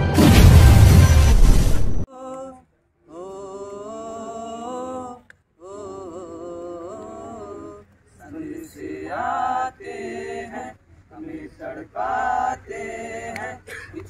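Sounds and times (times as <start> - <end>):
loud intro sound effect: 0.0 - 2.1
young men singing unaccompanied: 2.1 - 13.7.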